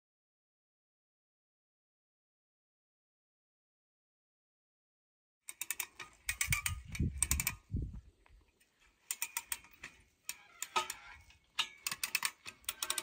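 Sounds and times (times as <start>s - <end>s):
ratchet tensioner clicking: 5.5s - 7.6s, 9.0s - 13.0s.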